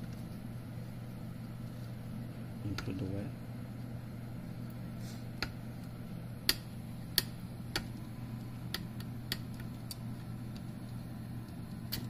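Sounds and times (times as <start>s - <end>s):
steady low hum: 0.0s - 12.0s
small sharp clicks and taps: 8.7s - 12.0s.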